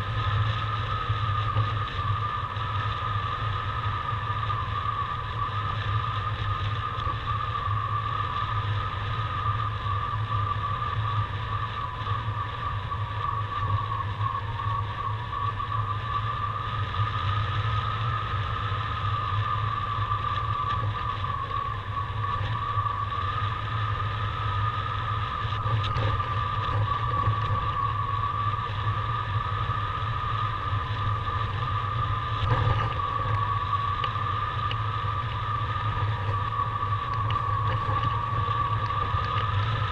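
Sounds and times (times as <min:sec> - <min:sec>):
wind rushing over camera: 0:00.0 - 0:39.9.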